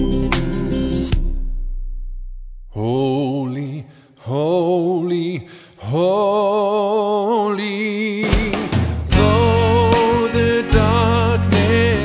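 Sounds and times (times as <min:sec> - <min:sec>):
backing music with percussion: 0:00.0 - 0:02.6, 0:08.2 - 0:12.0
man singing: 0:02.7 - 0:12.0.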